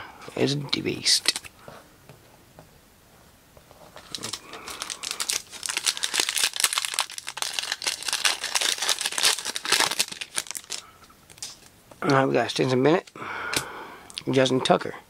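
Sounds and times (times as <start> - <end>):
wrapper tearing and crinkling: 4.0 - 11.7.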